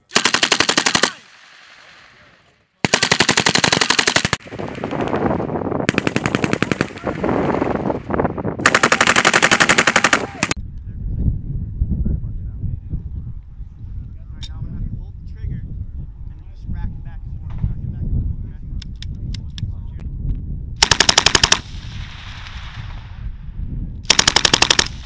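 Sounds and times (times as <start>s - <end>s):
machine gun automatic fire: 0.0s - 1.2s, 2.8s - 5.3s, 5.9s - 7.8s, 8.6s - 10.6s, 20.8s - 21.7s, 24.1s - 25.0s
rumbling gunfire: 2.8s - 10.6s, 20.8s - 25.0s.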